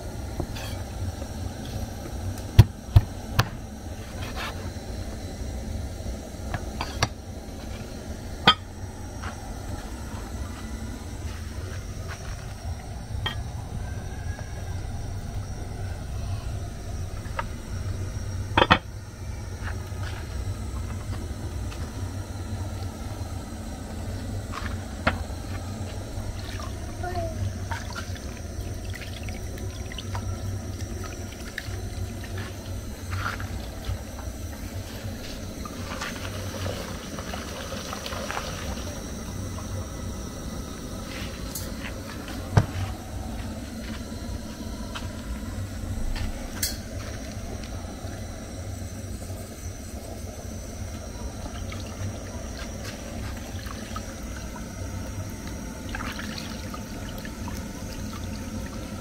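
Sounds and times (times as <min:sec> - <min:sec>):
water sloshing and splashing: 0:27.6 - 0:39.0, 0:51.4 - 0:59.0.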